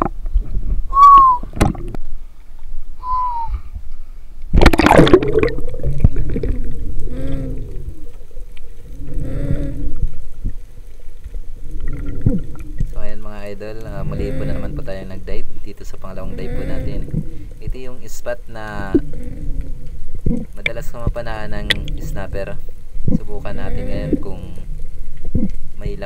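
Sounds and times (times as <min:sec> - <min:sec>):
short whistle-like tones: 0:00.9 - 0:01.5, 0:03.0 - 0:03.7
water gurgling and bubbling: 0:04.5 - 0:10.6, 0:11.5 - 0:15.3, 0:16.0 - 0:17.9, 0:18.6 - 0:25.7
rush of water and air: 0:04.5 - 0:13.1.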